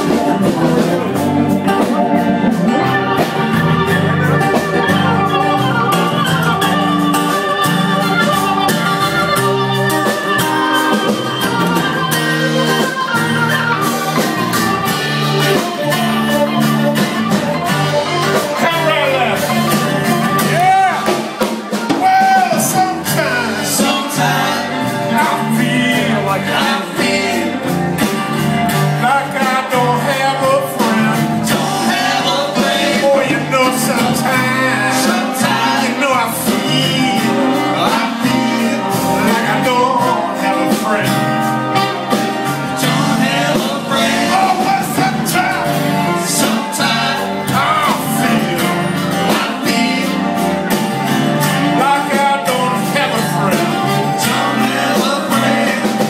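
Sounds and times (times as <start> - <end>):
acoustic guitar: 0.0 - 56.0
drum kit: 0.0 - 56.0
electric bass: 0.0 - 56.0
man singing: 18.2 - 28.1, 28.8 - 56.0.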